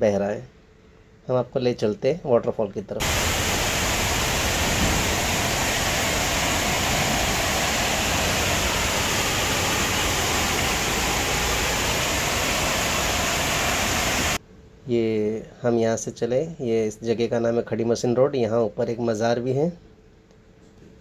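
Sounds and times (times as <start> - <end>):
waterfall roaring: 3.0 - 14.4.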